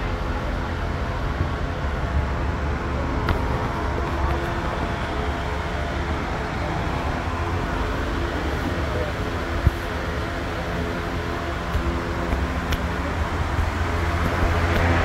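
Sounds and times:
low droning barn noise: 0.0 - 15.0
murmur of voices: 0.0 - 15.0.

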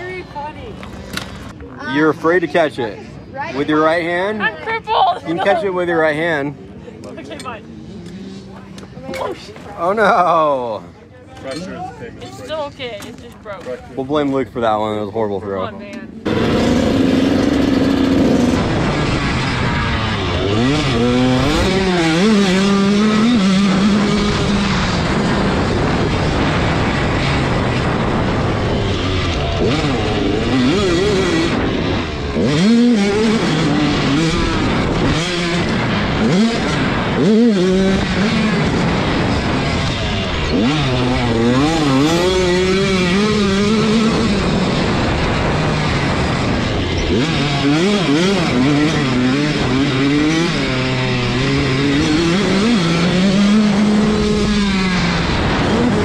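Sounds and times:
dirt bike engine revving: 16.2 - 56.0.

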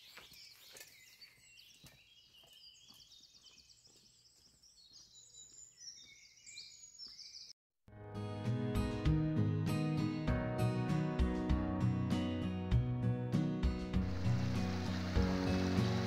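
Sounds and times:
faint birdsong: 0.0 - 7.6.

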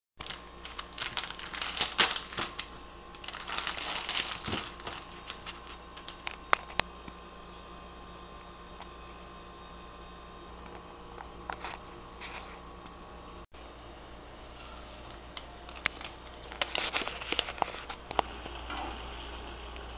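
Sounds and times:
plastic wrapper crinkling: 0.2 - 6.8, 15.6 - 18.0
faint steady hum: 0.2 - 19.9.

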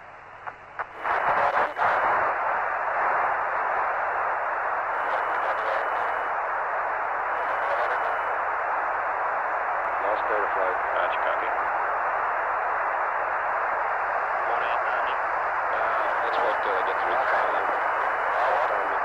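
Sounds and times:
radio static clicks: 0.0 - 6.4, 7.2 - 8.4, 14.5 - 19.0
radio static hiss: 0.0 - 19.0.

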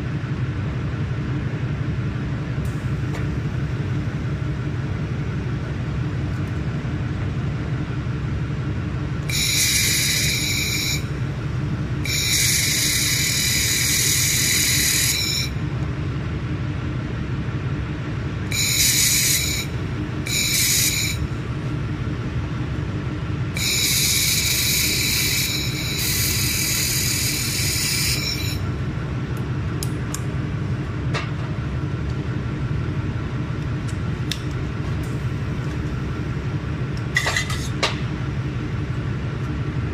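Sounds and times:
low machine hum: 0.0 - 39.9
laser welder hissing buzz: 9.3 - 11.2, 12.1 - 15.6, 18.5 - 21.3, 23.6 - 28.6.

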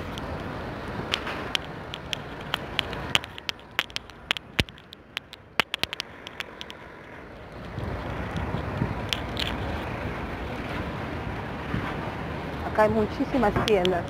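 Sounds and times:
sharp clicks and crackles: 0.0 - 10.2, 13.2 - 14.0
low traffic hum: 0.0 - 14.0.

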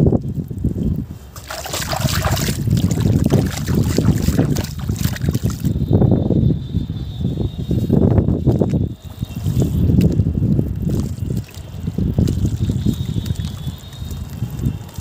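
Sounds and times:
wet sloshing and squelching: 1.3 - 5.7, 8.6 - 15.0
hissing splash: 1.4 - 5.6.

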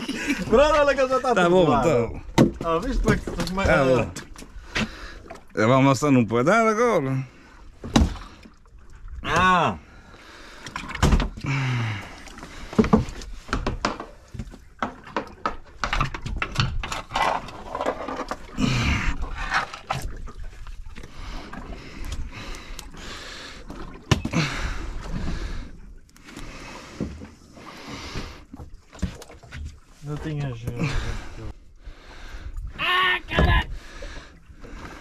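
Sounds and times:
knocks and thumps on boat deck: 2.3 - 4.9, 7.8 - 8.3, 10.8 - 11.4, 12.7 - 18.4, 33.3 - 33.8.

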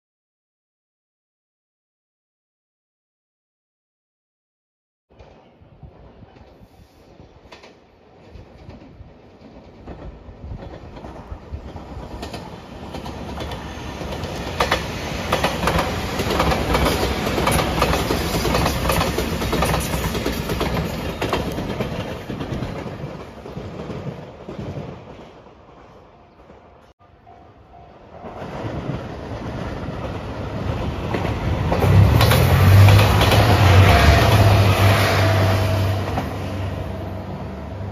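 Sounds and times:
electric train passing: 7.1 - 37.9
wheels clattering over rail joints: 29.4 - 34.7.

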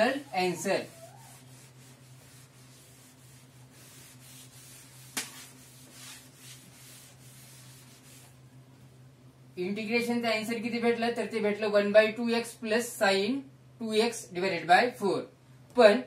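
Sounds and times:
cloth wiping chalkboard: 0.0 - 8.4
steady low hum: 0.0 - 15.8.

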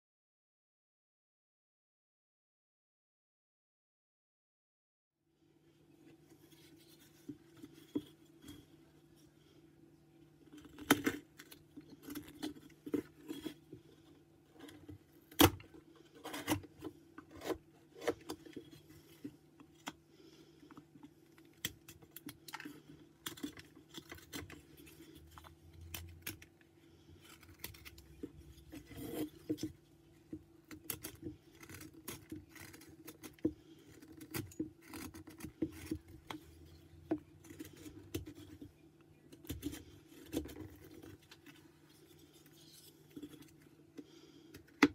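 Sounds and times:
faint steady hum: 5.3 - 44.9
knife carving wood: 10.4 - 20.0, 21.3 - 43.7.

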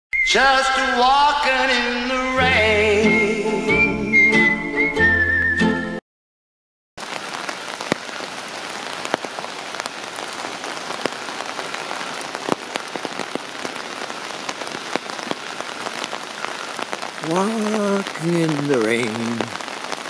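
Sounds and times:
steady rain with drops ticking: 7.0 - 20.0.

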